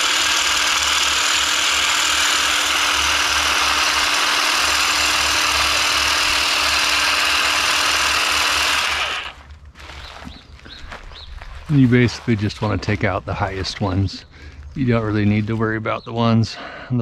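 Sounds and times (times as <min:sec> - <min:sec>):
electric hedge trimmer cutting: 0:00.0 - 0:09.5
steady motor hum: 0:00.0 - 0:10.0.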